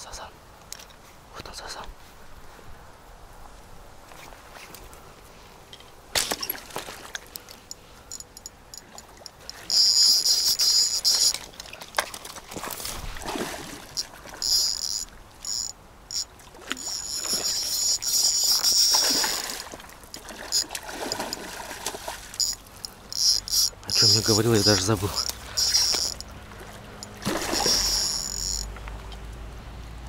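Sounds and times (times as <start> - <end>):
scattered clicks: 7.4 - 12.1, 22.4 - 26.3
insect buzzing: 8.1 - 11.5, 13.9 - 21.4, 22.4 - 26.3, 27.0 - 28.7
soft water splashing: 11.3 - 15.6, 16.3 - 29.6.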